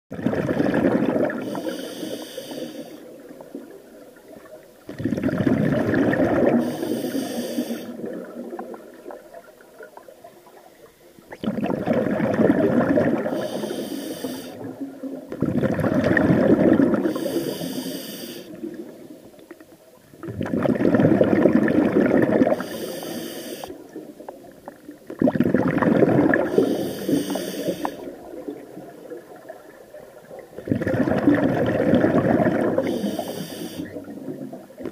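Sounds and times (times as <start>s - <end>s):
exhaled bubbles burbling: 0.1s - 1.7s, 3.0s - 10.6s, 11.2s - 13.7s, 14.4s - 17.6s, 20.1s - 22.7s, 23.7s - 34.9s
regulator hiss on inhale: 1.4s - 3.2s, 6.6s - 8.1s, 13.3s - 14.7s, 17.0s - 18.7s, 22.5s - 23.9s, 26.4s - 28.2s, 32.8s - 34.1s.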